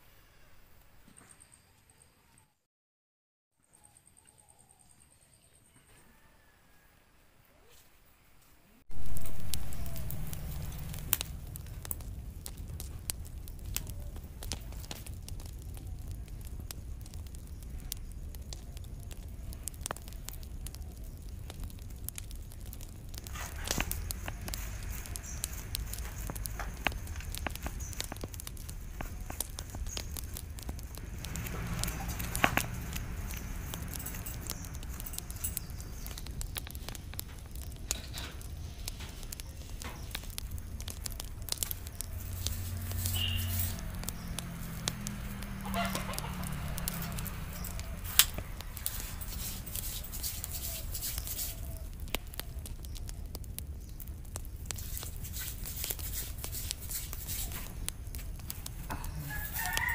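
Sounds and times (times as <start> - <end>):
wood fire crackling: 7.7 - 59.9
close-up scraping clicks: 21.2 - 59.9
chickens clucking: 45.6 - 47.2.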